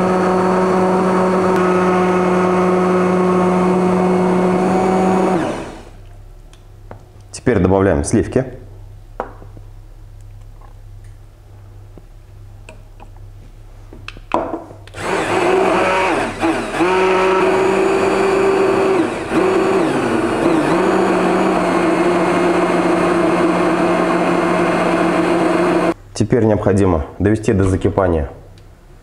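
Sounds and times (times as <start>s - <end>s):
immersion blender motor running: 0.0s - 6.0s, 14.9s - 26.0s.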